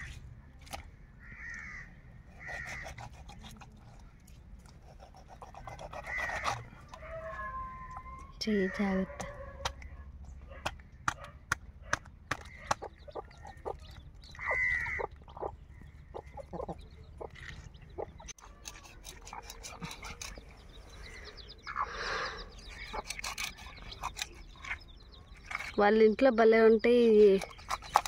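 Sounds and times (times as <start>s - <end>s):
chicken calls: 12.3s - 25.0s
chickens clucking: 12.3s - 25.3s.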